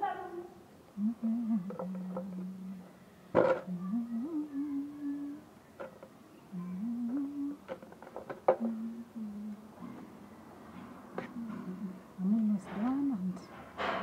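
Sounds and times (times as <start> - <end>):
woman humming slow tune: 1.0 - 2.9, 3.7 - 5.5, 6.5 - 7.7, 8.5 - 9.8, 11.2 - 12.6.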